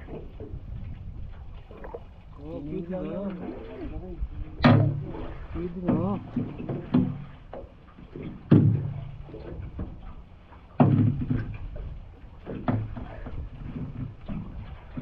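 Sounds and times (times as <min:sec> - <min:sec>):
heavy thuds against boat: 0:04.4 - 0:15.0.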